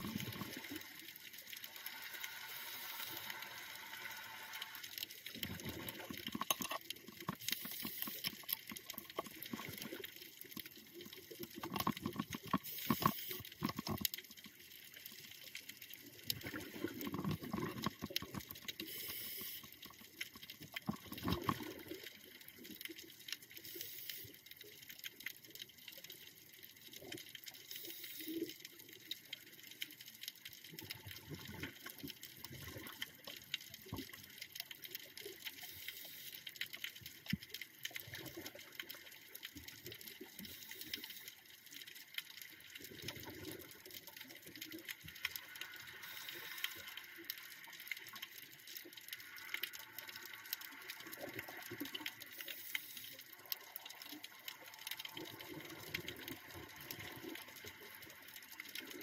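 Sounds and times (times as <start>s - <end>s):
exhaled air bubbling: 0.0s - 1.0s, 5.3s - 10.3s, 16.0s - 22.3s
regulator inhalation hiss: 1.9s - 4.8s, 7.5s - 8.3s, 12.7s - 13.5s, 18.8s - 19.7s, 23.7s - 24.3s, 46.0s - 46.9s.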